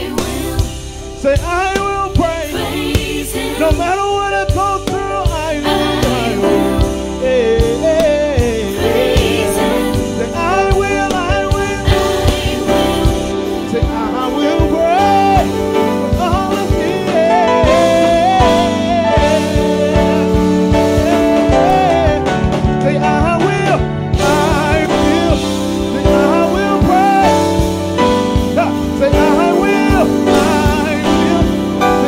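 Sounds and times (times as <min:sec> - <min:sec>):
band playing with steady beat: 0:00.0 - 0:32.0
man singing wordless vocal runs: 0:13.7 - 0:27.6, 0:28.6 - 0:32.0.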